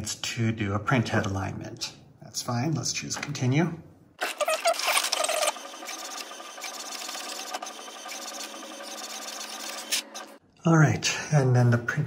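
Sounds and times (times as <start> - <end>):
printer motor whining: 4.2 - 10.4
printer mechanism whirring and ticking: 5.0 - 10.4.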